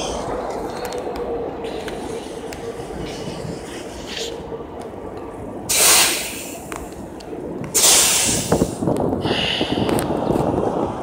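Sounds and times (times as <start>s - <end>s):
bus engine idling: 0.0s - 11.0s
bus air brake hissing: 5.7s - 6.7s, 7.7s - 9.9s.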